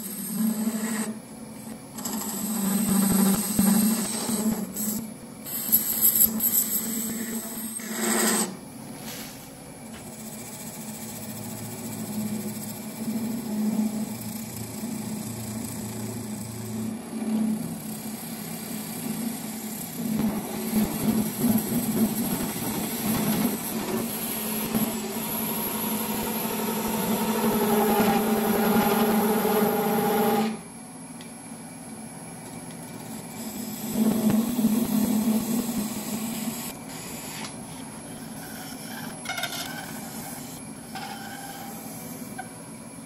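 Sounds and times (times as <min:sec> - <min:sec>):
lathe humming: 0:10.1 - 0:30.7
turning tool scraping brass: 0:38.1 - 0:42.3.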